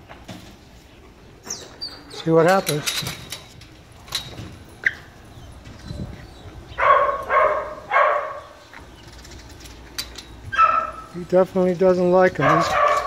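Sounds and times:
dog barking: 6.8s - 8.5s, 10.5s - 11.1s, 12.4s - 13.0s.

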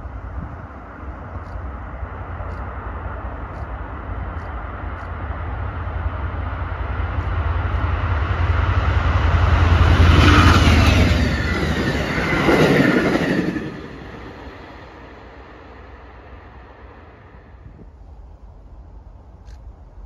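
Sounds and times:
locomotive engine hum: 0.0s - 20.0s
train wheels on rails: 0.0s - 20.0s.

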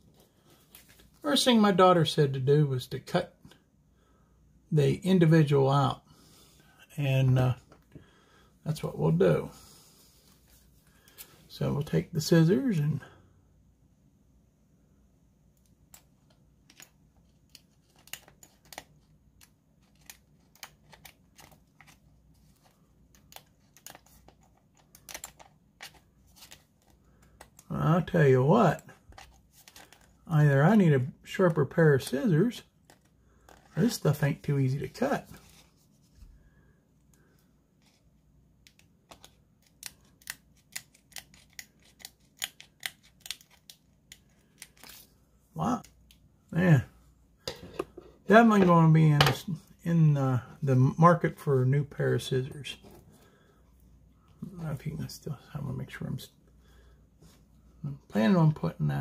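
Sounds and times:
scissors snipping paper: 39.1s - 44.9s
paper crinkling: 39.1s - 45.2s.

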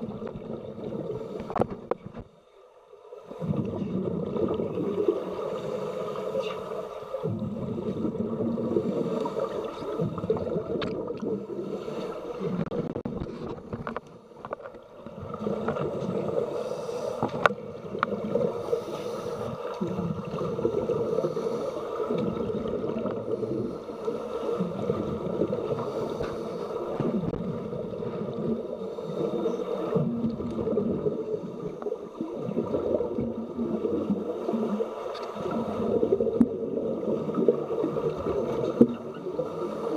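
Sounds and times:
muffled underwater rumble: 0.0s - 2.3s, 3.3s - 39.9s
bubbles gurgling underwater: 3.3s - 6.1s, 7.2s - 11.8s, 19.5s - 23.7s, 24.6s - 25.9s, 26.9s - 39.6s.

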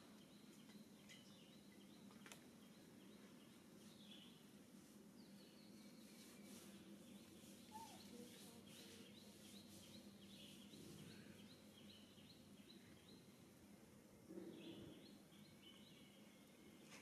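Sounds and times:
small bird chirping: 5.2s - 13.4s.

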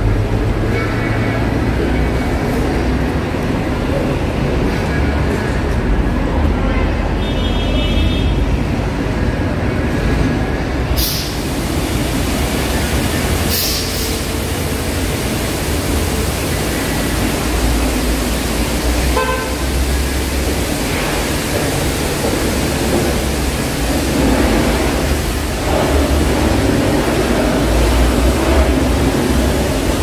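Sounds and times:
car wash rushing water: 0.0s - 6.5s, 8.6s - 30.0s
short hiss: 11.0s - 11.4s, 13.5s - 14.3s.

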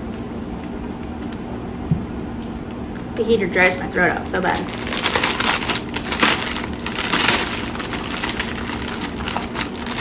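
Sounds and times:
plastic packaging crinkling: 3.6s - 10.0s.

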